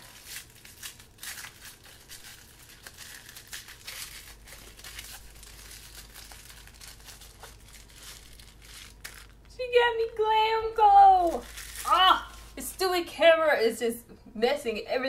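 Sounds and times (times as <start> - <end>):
wrapping paper crinkling: 0.0 - 9.5, 11.2 - 12.9.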